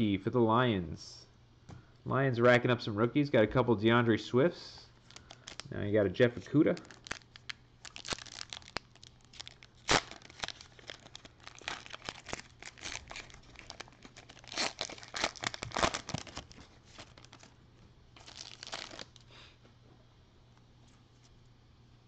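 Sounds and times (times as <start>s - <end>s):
foil wrapper crackling: 5.0s - 5.7s, 6.6s - 17.6s, 18.2s - 19.2s.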